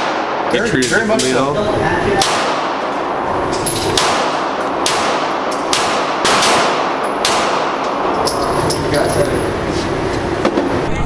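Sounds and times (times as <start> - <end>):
handgun shots echoing: 2.2 - 3.0, 3.6 - 8.4.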